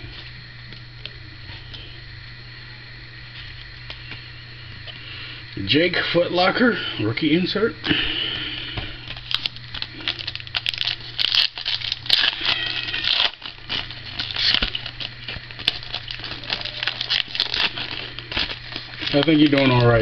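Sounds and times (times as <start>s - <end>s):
foil wrapper crinkling and tearing: 8.6s - 20.0s.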